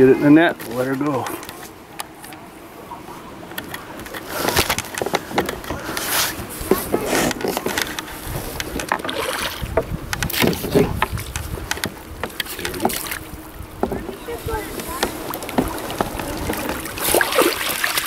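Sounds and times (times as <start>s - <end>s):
fish splashing at water surface: 14.3s - 18.0s.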